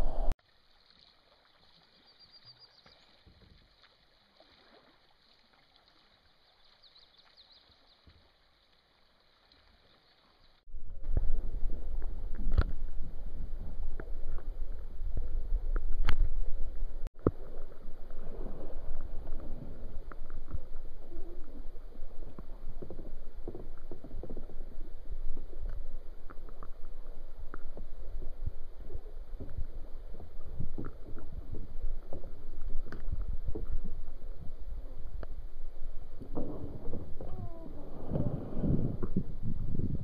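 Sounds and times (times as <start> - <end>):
low rumble: 0.0 - 0.4, 10.7 - 40.0
paddles splashing in shallow water: 0.4 - 8.4.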